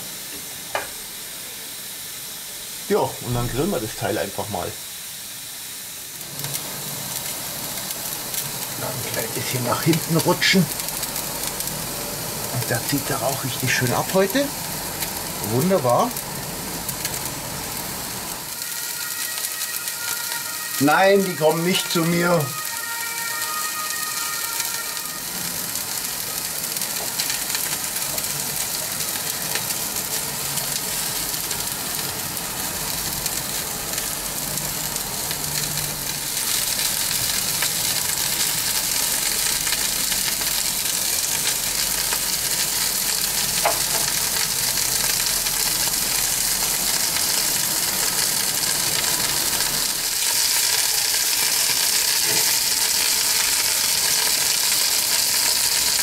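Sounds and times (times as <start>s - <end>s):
steak sizzling on a grill: 0.0s - 56.0s.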